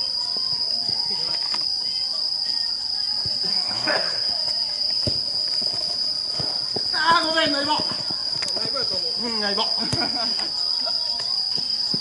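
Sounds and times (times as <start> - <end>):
crickets trilling: 0.0 - 12.0
ball and feet knocking on turf: 4.3 - 9.2, 9.8 - 10.2.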